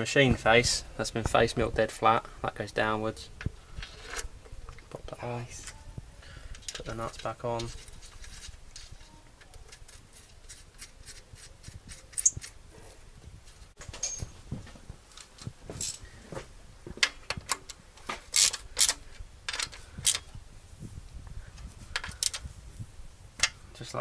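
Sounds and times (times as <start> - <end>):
spanner and nuts clinking on metal: 13.9 - 14.3.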